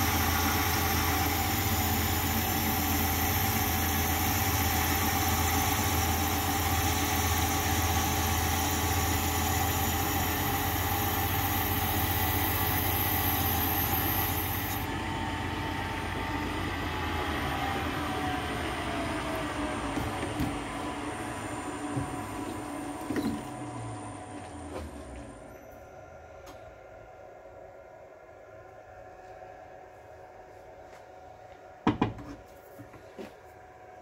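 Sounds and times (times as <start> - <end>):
cutting tool hissing: 0.0 - 14.9
metal lathe humming: 0.0 - 25.3.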